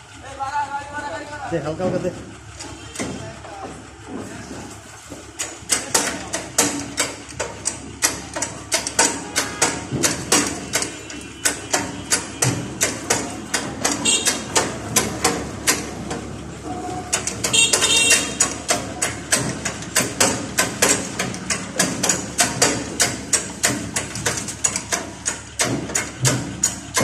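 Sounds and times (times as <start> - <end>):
hammering on metal: 5.2 - 16.4, 17.1 - 27.0.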